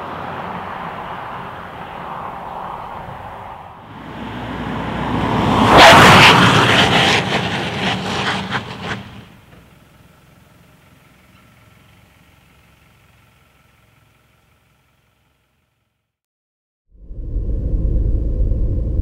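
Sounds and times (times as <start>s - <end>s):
car driving past: 0.0s - 9.5s.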